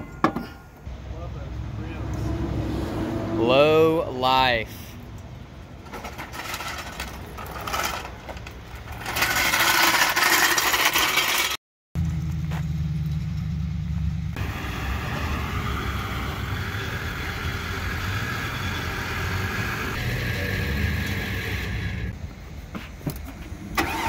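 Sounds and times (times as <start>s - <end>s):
truck engine idling: 12.0s - 24.0s.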